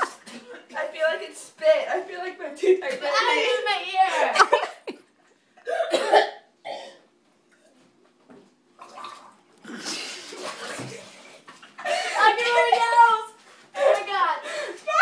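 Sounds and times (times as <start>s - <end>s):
girl coughing and sputtering: 5.6s - 7.0s.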